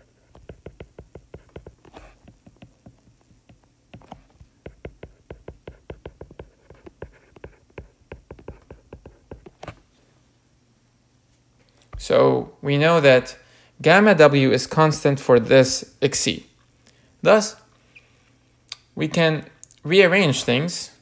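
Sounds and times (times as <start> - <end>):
stylus tapping on tablet screen: 0.3 - 9.6.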